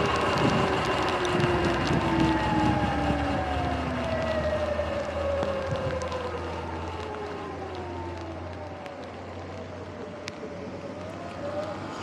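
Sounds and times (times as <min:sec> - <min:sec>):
tyre and wind noise: 0:00.0 - 0:06.3.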